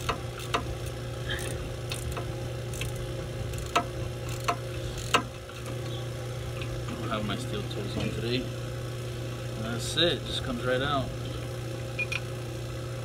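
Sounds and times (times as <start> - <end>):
wrench clicking on bolts: 0.0 - 5.3
steady low hum: 0.0 - 13.0.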